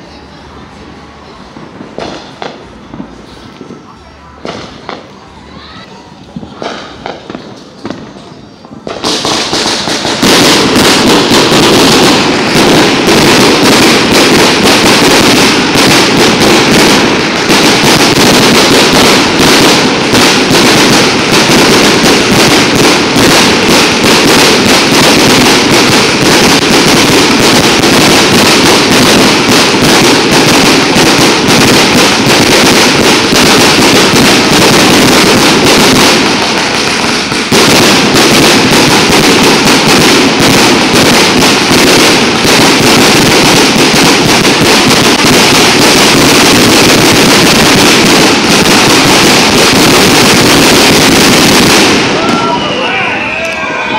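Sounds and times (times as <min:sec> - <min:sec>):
firework barrage loud bangs: 0:00.0 - 0:53.9.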